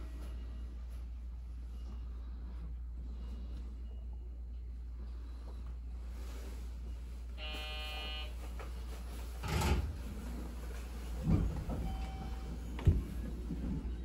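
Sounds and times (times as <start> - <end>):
train low hum: 0.0 - 9.4, 10.0 - 14.0
short electronic tone: 7.4 - 8.3.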